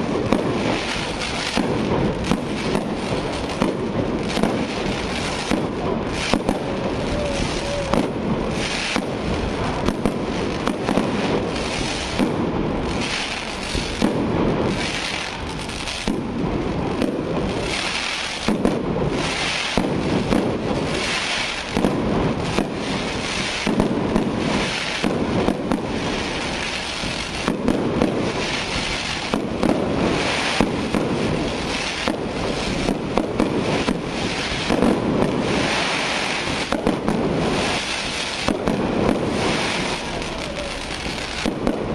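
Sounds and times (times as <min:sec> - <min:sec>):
firework bangs: 0:00.0 - 0:41.9
fireworks crackling: 0:00.0 - 0:41.9.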